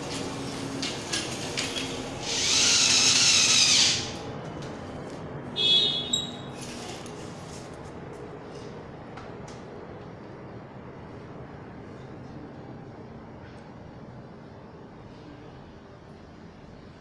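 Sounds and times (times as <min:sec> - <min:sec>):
electric drill drilling into wood: 0:02.2 - 0:04.2.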